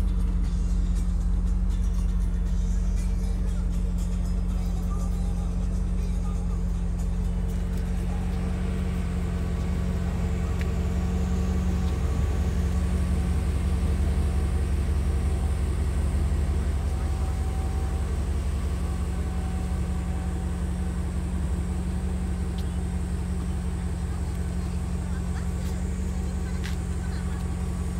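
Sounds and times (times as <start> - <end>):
car engine idling: 0.0 - 27.9.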